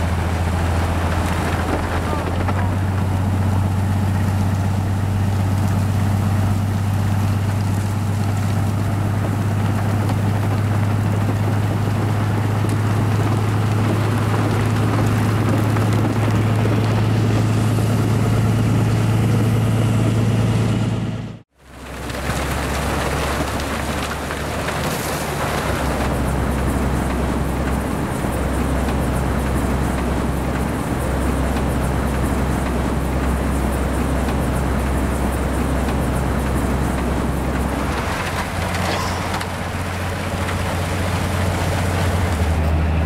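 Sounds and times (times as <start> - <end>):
low engine drone: 0.0 - 43.0.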